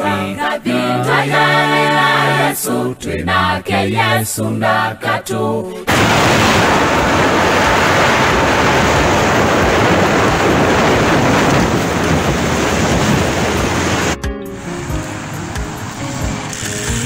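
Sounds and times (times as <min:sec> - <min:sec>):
wind noise: 0:06.1 - 0:14.9
car road noise: 0:06.6 - 0:17.0.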